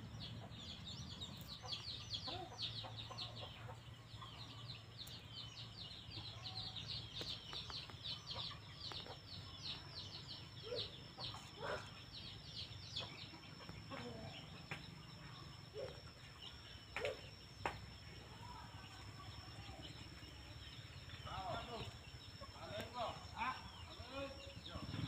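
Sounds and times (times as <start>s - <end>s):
birds chirping high: 0.0s - 25.0s
lower bird clucks: 16.9s - 17.8s.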